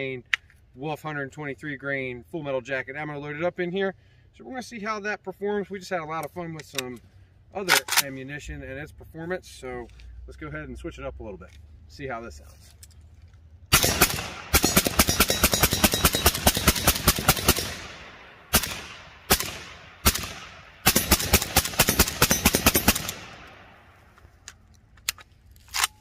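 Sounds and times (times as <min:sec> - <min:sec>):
suppressed rifle shots: 0:13.7 - 0:23.8.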